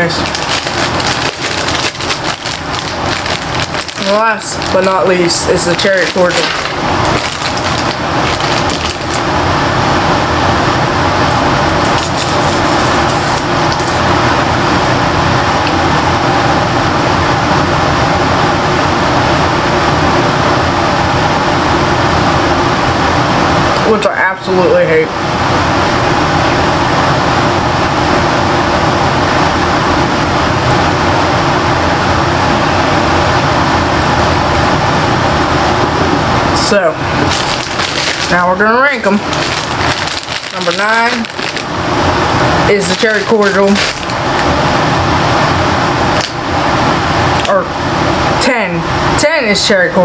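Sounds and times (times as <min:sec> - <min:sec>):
foil wrapper crinkling: 0:00.0 - 0:09.4, 0:11.3 - 0:14.1, 0:37.1 - 0:42.2, 0:42.8 - 0:44.5
loud rushing noise with rumble: 0:00.0 - 0:23.8
loud rushing noise with hum: 0:00.0 - 0:49.2.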